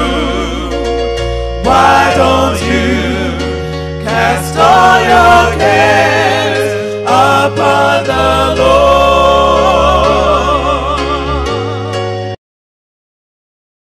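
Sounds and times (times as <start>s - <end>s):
gospel singing voices: 0.0s - 12.2s
held bass notes: 0.0s - 12.4s.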